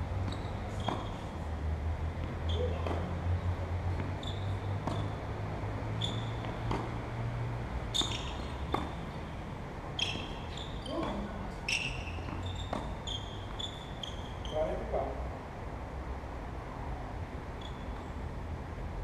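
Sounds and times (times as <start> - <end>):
shoe squeaks on court: 0.2 - 1.3, 2.4 - 3.1, 4.0 - 5.2, 5.9 - 6.9, 7.9 - 9.0, 10.0 - 14.8, 17.6 - 18.1
tennis ball strikes and bounces: 0.2 - 1.4, 2.1 - 3.2, 3.9 - 7.3, 7.9 - 9.3, 9.9 - 14.3.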